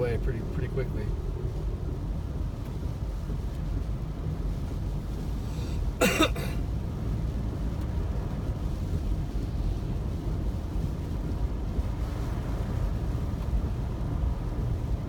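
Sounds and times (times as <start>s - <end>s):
car driving on wet road: 0.0s - 15.0s
heavy rain: 0.0s - 15.0s
person coughing: 6.0s - 6.6s.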